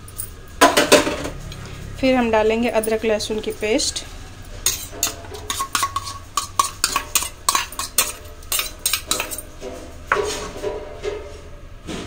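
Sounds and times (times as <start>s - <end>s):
steel spoon clinking on bowls: 4.6s - 9.6s.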